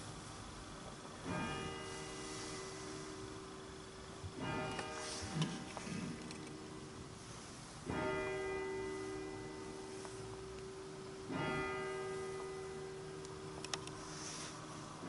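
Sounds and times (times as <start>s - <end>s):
church bell tolling: 1.2s - 3.6s, 4.4s - 7.1s, 7.8s - 13.5s.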